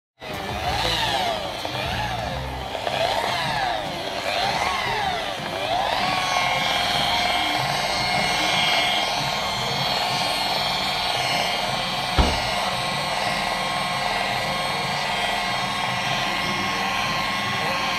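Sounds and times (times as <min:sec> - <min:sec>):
electric polisher motor whine: 0:00.2 - 0:17.9
brief knock: 0:12.2 - 0:12.6.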